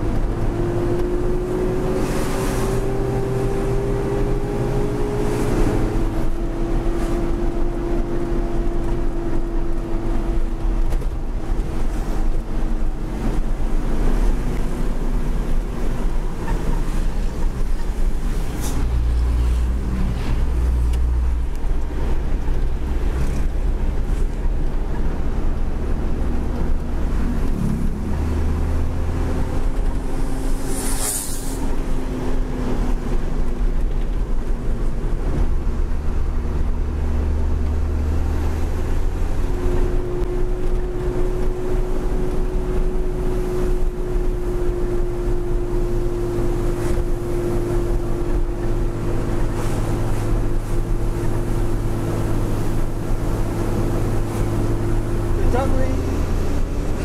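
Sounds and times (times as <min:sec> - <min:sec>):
road and wind noise: 0:00.0 - 0:57.0
short hiss: 0:30.6 - 0:31.7.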